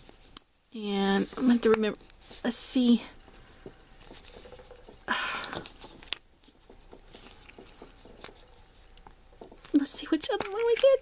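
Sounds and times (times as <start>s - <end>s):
plastic capsule clicking and rubbing: 3.2s - 11.0s.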